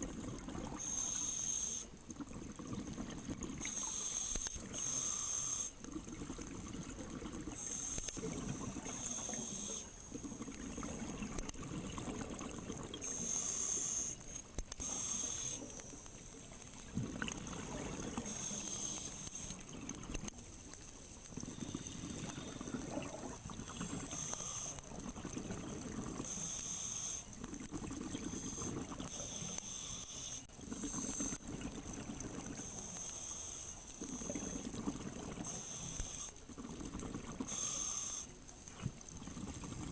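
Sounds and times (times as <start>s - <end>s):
hissing regulator inhalations: 3.6s - 5.8s, 7.6s - 10.4s, 13.0s - 15.8s, 17.4s - 19.6s, 23.6s - 25.0s, 37.5s - 38.4s.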